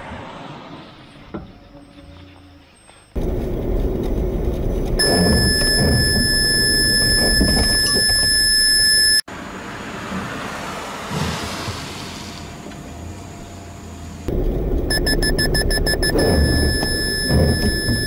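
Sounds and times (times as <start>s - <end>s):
car driving past: 0.0s - 1.3s
cabin road noise: 3.2s - 18.0s
collision warning beeping: 5.0s - 9.2s, 14.3s - 18.0s.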